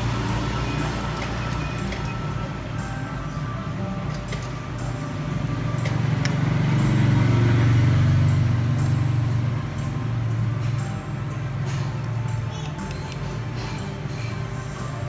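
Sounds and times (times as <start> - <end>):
passing vehicle engine drone: 5.3 - 11.4.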